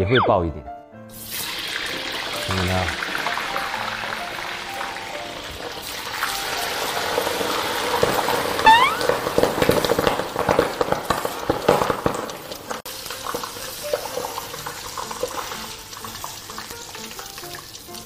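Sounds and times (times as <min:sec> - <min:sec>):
hot oil spitting and crackling: 0:01.1 - 0:18.0
short rising whistle-like tone: 0:08.6 - 0:09.1.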